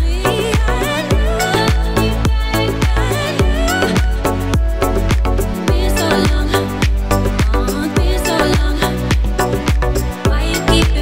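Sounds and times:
kick drum beat: 0:00.0 - 0:11.0.

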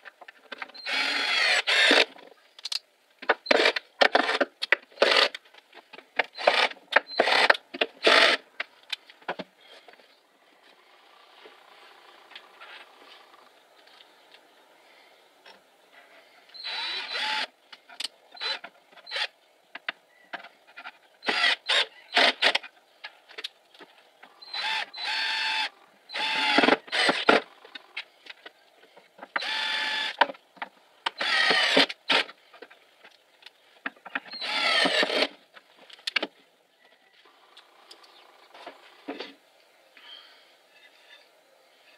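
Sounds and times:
cordless drill driving screws: 0:00.8 - 0:02.1, 0:06.4 - 0:08.4, 0:16.6 - 0:17.5, 0:21.2 - 0:22.6, 0:24.5 - 0:27.4, 0:29.4 - 0:30.2, 0:31.1 - 0:32.3, 0:34.3 - 0:35.4.

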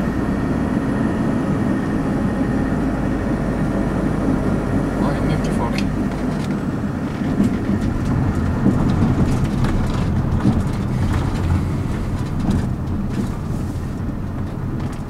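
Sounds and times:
car engine and road rumble: 0:00.0 - 0:15.0
tyres crackling over gravel: 0:05.1 - 0:15.0.

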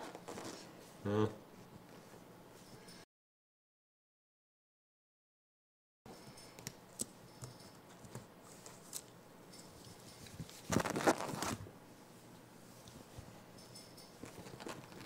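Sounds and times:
blanket rustle: 0:10.5 - 0:11.6.

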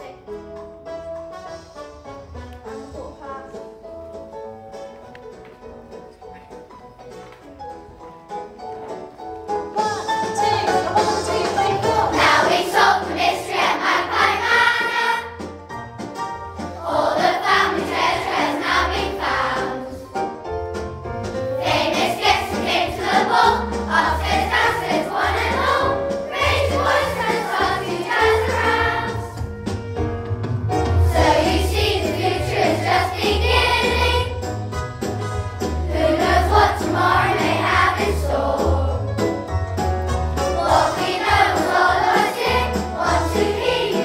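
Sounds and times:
musical accompaniment with bass: 0:00.0 - 0:44.0
children's choir singing: 0:09.8 - 0:15.4, 0:16.6 - 0:20.1, 0:21.6 - 0:29.4, 0:30.9 - 0:34.6, 0:35.4 - 0:39.3, 0:40.4 - 0:44.0.

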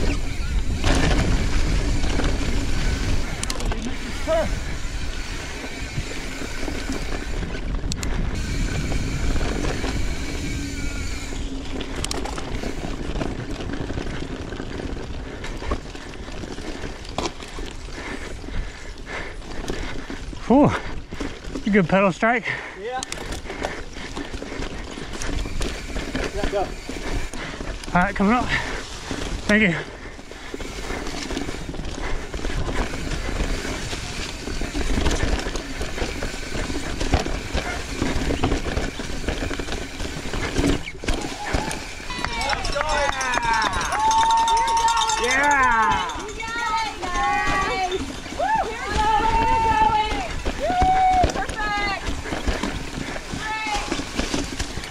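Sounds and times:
wind rumble on microphone: 0:00.0 - 0:16.7
bike clacking: 0:00.0 - 0:54.9
bike tyres rumbling on dirt: 0:00.0 - 0:54.9.

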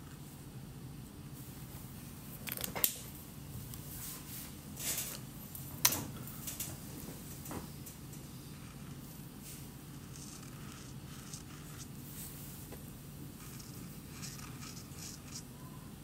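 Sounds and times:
low room hum: 0:00.0 - 0:16.0
markers scraping and rustling: 0:08.2 - 0:12.4, 0:13.4 - 0:15.5.

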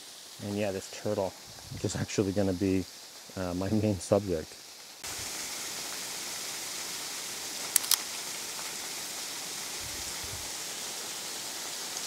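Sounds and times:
waterfall hissing: 0:00.0 - 0:12.0
camera shutter clicks: 0:07.7 - 0:08.0.

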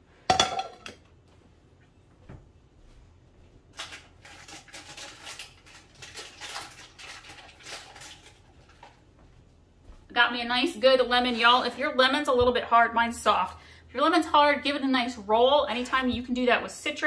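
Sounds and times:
kitchen clatter and rustling: 0:03.7 - 0:09.0.

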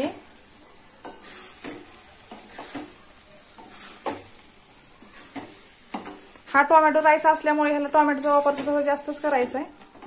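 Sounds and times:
faint sizzle: 0:00.0 - 0:10.0
spatula scraping metal pan: 0:01.0 - 0:06.4, 0:07.8 - 0:09.6.

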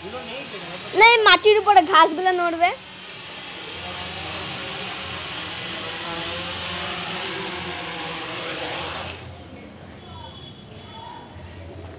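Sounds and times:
drone propellers whirring: 0:00.0 - 0:09.3.

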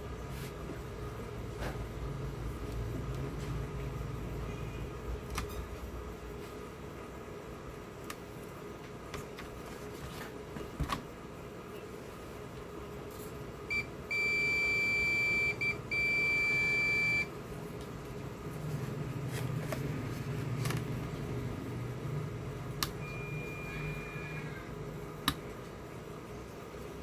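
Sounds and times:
multimeter continuity beep: 0:13.7 - 0:17.3, 0:22.9 - 0:24.4.

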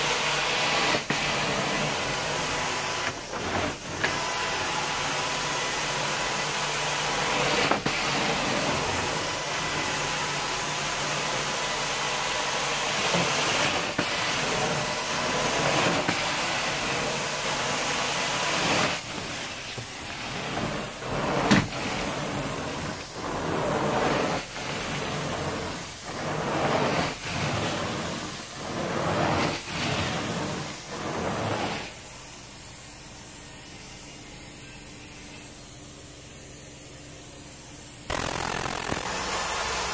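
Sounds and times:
carpet extraction wand hissing: 0:38.1 - 0:39.9.

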